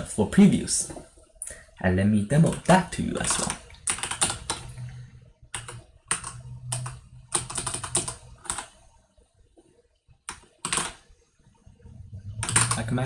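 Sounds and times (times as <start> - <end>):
computer keyboard typing: 2.4 - 8.9, 10.2 - 11.2, 12.1 - 13.0.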